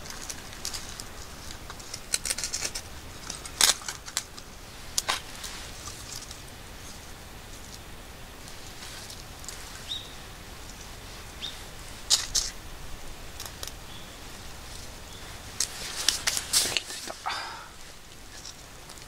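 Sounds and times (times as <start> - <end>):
kindling sticks clicking and knocking: 12.0 - 12.6, 13.3 - 13.8, 14.6 - 19.0.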